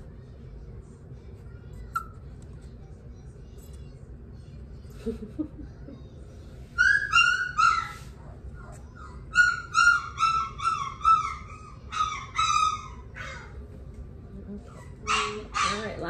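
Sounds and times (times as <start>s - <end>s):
puppy whining: 1.8s - 2.6s, 5.6s - 13.7s, 14.5s - 16.0s.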